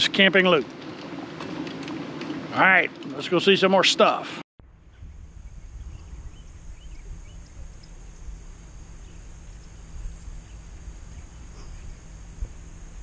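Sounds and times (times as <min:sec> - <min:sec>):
wind rumbling on microphone: 0:04.6 - 0:13.0
faint steady high hiss: 0:04.9 - 0:13.0
faint bird chirps: 0:09.0 - 0:12.2.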